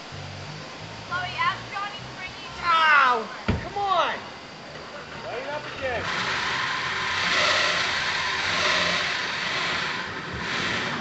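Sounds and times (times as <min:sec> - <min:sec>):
car engine revving: 0:04.7 - 0:11.0.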